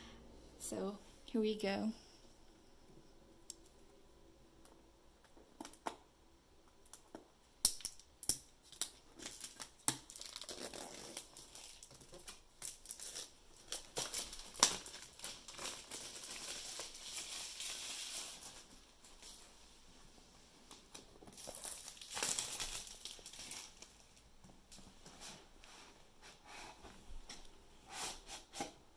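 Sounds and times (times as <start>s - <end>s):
packaging crinkling and rustling: 8.6s - 19.5s, 20.7s - 25.0s.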